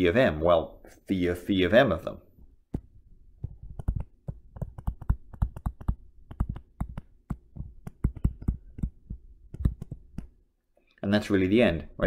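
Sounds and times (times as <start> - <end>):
stylus tapping on a tablet: 2.7 - 10.4.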